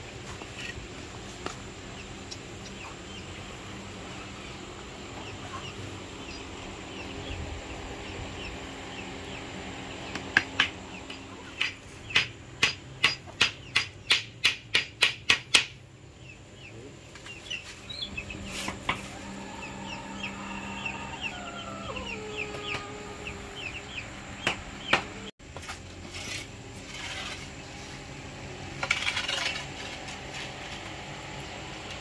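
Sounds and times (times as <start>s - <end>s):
chickens chirping and clucking: 0.0s - 14.3s, 15.9s - 25.3s
hammer striking wood: 11.6s - 15.8s, 24.4s - 25.1s.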